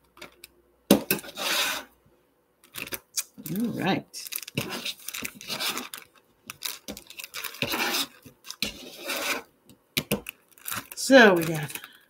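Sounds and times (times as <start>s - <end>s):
utensils scraping on cutting board: 1.0s - 1.9s, 4.6s - 5.9s, 7.5s - 9.5s
plastic bag crinkling: 2.6s - 9.5s, 10.1s - 12.0s.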